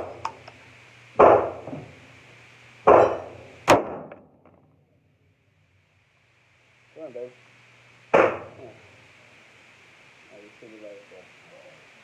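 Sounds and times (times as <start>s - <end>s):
pistol shots echoing: 2.9s - 4.2s.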